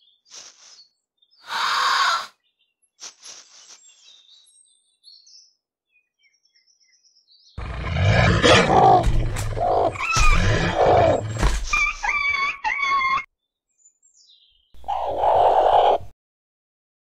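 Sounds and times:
animals snarling and growling: 7.6 - 12.4, 14.8 - 16.1
wolf yelping: 8.0 - 13.2, 14.8 - 16.1
sharp thuds: 8.8 - 12.0.

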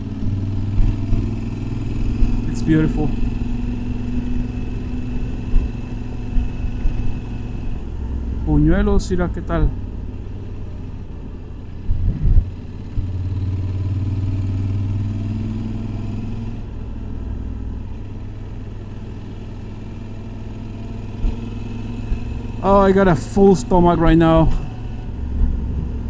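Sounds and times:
low thumps: 0.0 - 9.1, 11.8 - 13.2, 24.4 - 26.0
low wind rumble: 0.0 - 15.2, 21.0 - 26.0
motorcycle engine running: 0.0 - 26.0.

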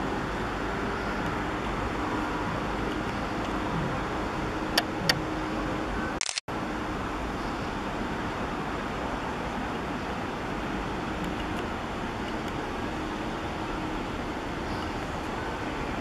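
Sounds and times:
road traffic hum: 0.0 - 16.0
sharp clicks: 6.2 - 6.5.

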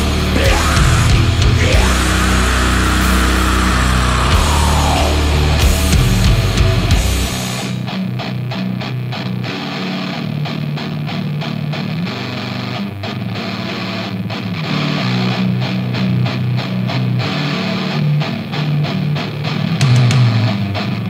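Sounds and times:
deep bass: 0.0 - 7.9
distorted electric guitar riff: 0.0 - 21.0.

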